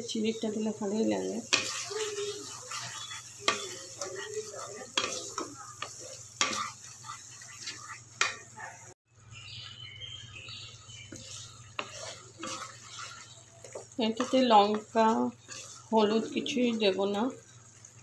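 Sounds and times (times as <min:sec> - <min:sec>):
paste sizzling: 0:00.0 - 0:18.0
wooden spatula scraping pan: 0:01.2 - 0:08.5, 0:11.0 - 0:16.8.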